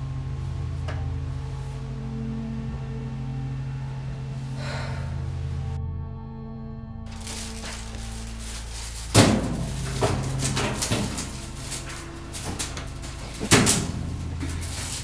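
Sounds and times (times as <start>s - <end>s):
steady low hum: 0.0s - 15.0s
clothes rustling: 7.1s - 15.0s
light clatter: 7.1s - 15.0s
loud knocks on washing machine: 9.2s - 15.0s.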